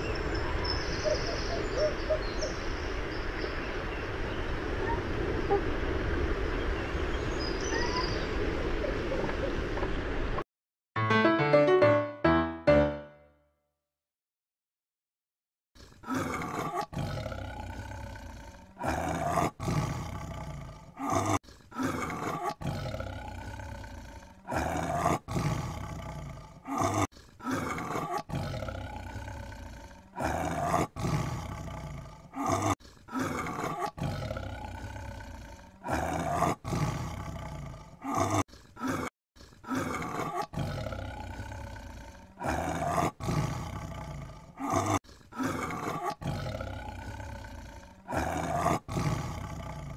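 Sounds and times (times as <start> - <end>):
tiger roaring: 15.8 - 49.9.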